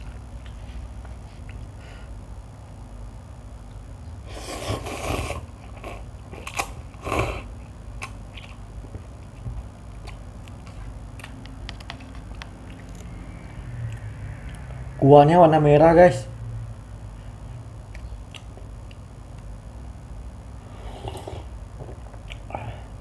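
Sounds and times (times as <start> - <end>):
person slurping noodles: 4.3 - 6.0, 20.7 - 21.6
quiet chewing: 8.0 - 13.2, 17.9 - 19.5, 21.0 - 22.6.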